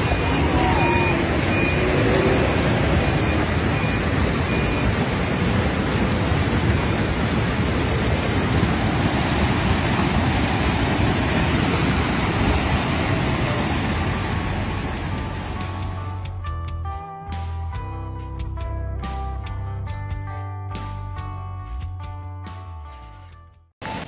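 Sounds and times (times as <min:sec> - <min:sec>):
flood water rushing: 0:00.0 - 0:16.2.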